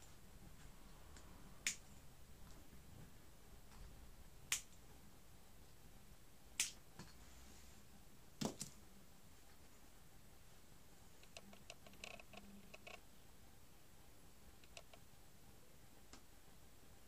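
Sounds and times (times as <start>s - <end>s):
sharp snapping clicks: 1.2s - 1.8s, 4.5s - 4.8s, 6.6s - 6.8s.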